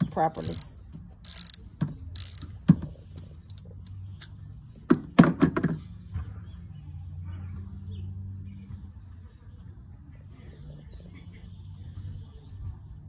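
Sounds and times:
metal hand tools clinking: 0.3s - 0.6s, 1.3s - 1.6s, 2.2s - 2.5s.

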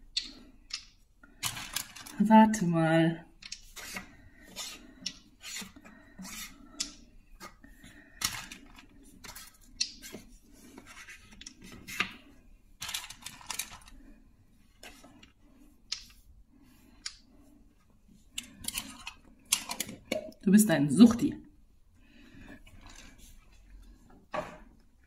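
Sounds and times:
wooden puzzle pieces scraping: 0.2s - 2.2s, 3.4s - 16.2s.

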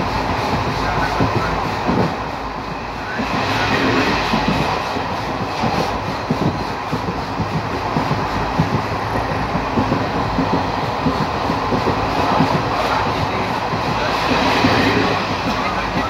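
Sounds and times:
train running noise: 0.0s - 16.0s
wheels knocking and rattling: 4.1s - 16.0s.

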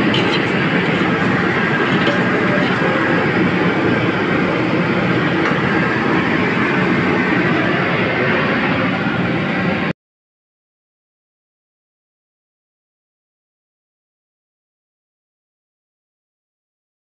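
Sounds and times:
kitchen equipment roaring: 0.0s - 9.9s.

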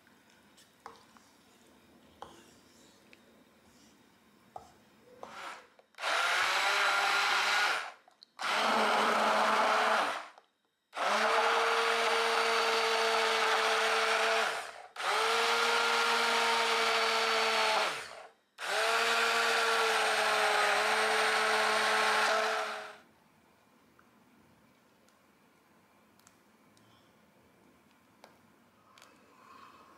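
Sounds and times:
immersion blender motor hum: 5.2s - 10.4s, 11.0s - 23.0s.

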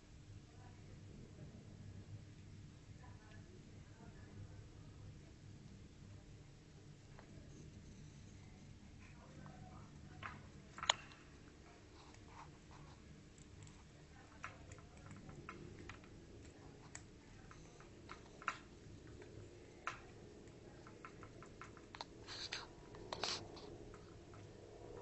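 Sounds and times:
faint low hum: 0.0s - 25.0s
animals cracking seeds: 7.1s - 25.0s.

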